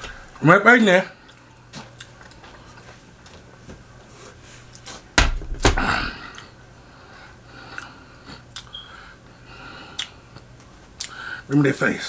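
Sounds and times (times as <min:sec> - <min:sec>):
lip smacks and mouth clicks: 0:08.5 - 0:08.7, 0:09.9 - 0:11.2.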